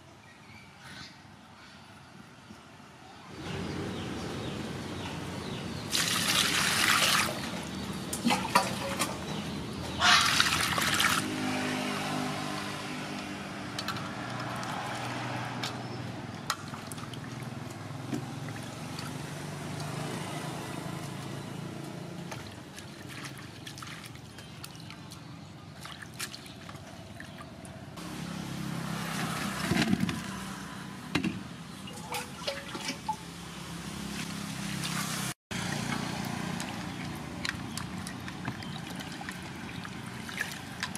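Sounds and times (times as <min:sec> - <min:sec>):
water splashing in a metal basin: 0:05.9 - 0:27.7, 0:31.7 - 0:40.9.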